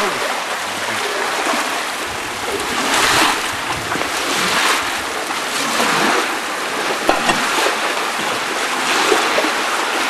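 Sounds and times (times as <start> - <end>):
water rushing and splashing: 0.0 - 10.0
sharp knocks: 7.1 - 7.6.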